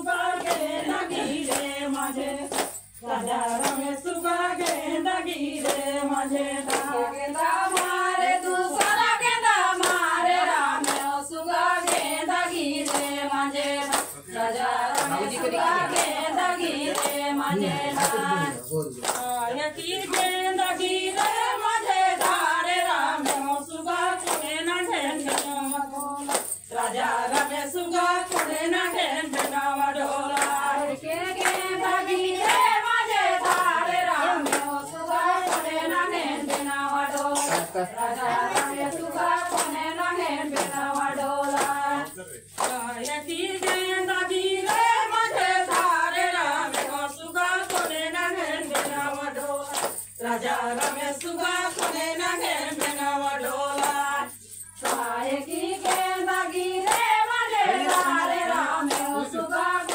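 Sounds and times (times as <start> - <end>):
rhythmic hand-clapping: 0.0 - 59.9
women singing folk song in unison: 0.0 - 59.9.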